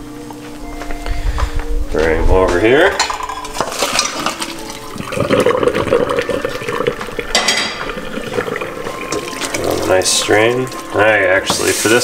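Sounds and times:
water pouring into colander: 3.5s - 12.0s.

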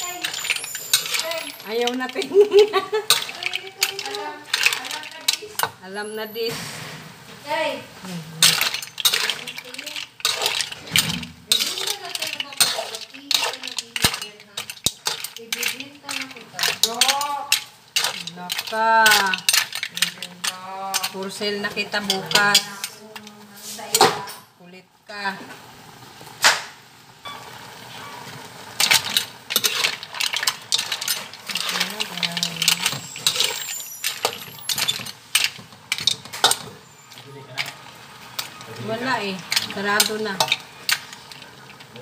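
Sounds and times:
clicks and rattles: 0.0s - 5.7s, 8.4s - 23.3s, 28.8s - 37.8s
dishes and utensils clinking: 0.0s - 6.4s, 8.3s - 24.5s, 27.3s - 42.0s.

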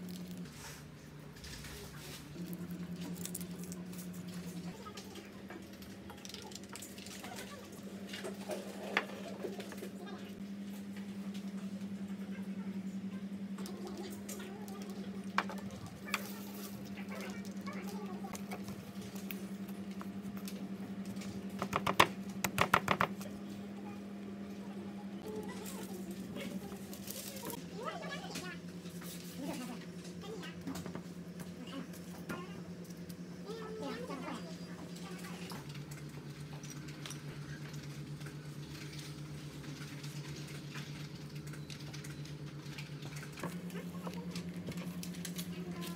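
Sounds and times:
steady low hum: 0.0s - 45.9s
hands tapping and scraping dough: 21.6s - 23.2s.

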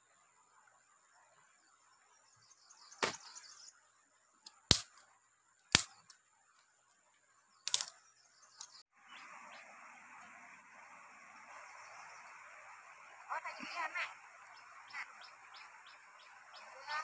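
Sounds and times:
dry sticks snapping: 4.5s - 6.2s, 7.7s - 7.9s.

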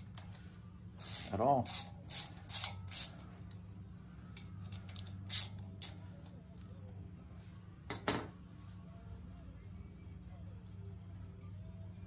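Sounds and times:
steady low hum: 0.0s - 12.0s
hand ratchet clicking: 1.0s - 3.2s, 4.8s - 6.0s.

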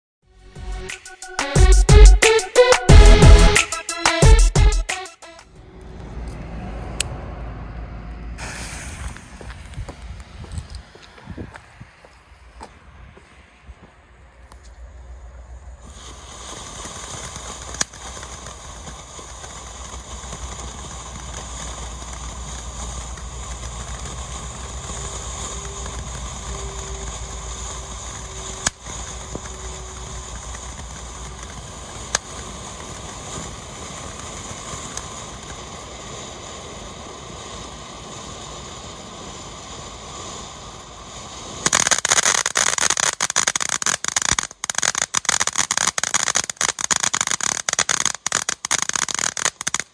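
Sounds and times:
firework hissing: 0.5s - 5.5s, 8.2s - 13.4s, 14.1s - 49.9s
firework dense crackling: 0.5s - 6.2s, 8.2s - 49.9s
firework sharp pops: 8.4s - 12.8s, 15.8s - 49.9s.

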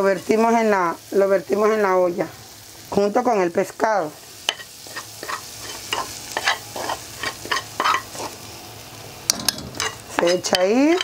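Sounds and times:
faint sizzle: 0.0s - 11.0s
metal spoon scraping frying pan: 4.5s - 8.4s, 9.3s - 11.0s.

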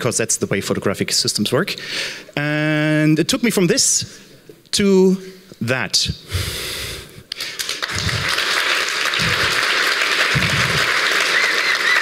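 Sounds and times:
audience applauding: 7.4s - 12.0s.

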